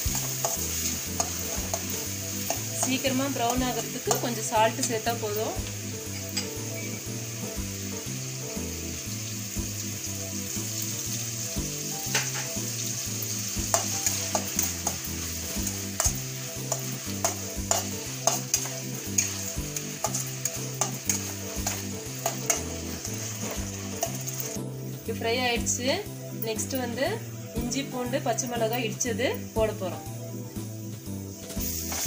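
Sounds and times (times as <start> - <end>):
onions sizzling in oil: 0.0 - 32.0
spatula scraping pan: 13.7 - 24.5.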